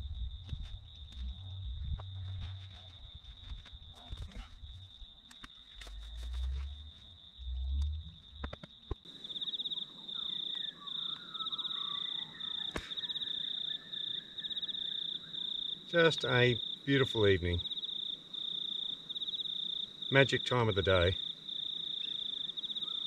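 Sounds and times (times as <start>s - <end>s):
low rumbles: 0.0s - 2.6s, 5.8s - 8.6s
insects trilling: 0.0s - 23.0s
faint bird-like chirps: 9.4s - 15.4s.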